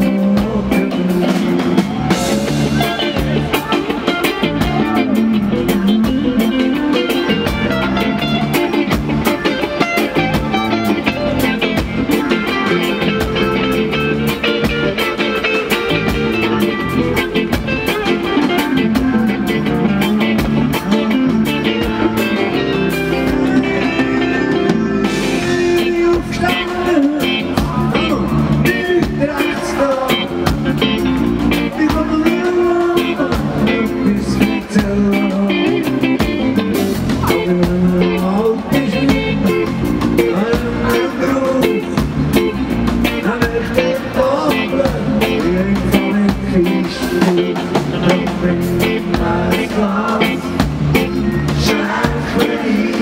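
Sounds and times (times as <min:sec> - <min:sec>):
man singing into microphone: 0:00.0 - 0:03.4, 0:18.4 - 0:21.2, 0:23.2 - 0:30.9, 0:31.6 - 0:42.4, 0:43.1 - 0:53.0
bass guitar: 0:00.0 - 0:53.0
drum kit: 0:00.0 - 0:53.0
electric guitars: 0:00.0 - 0:53.0.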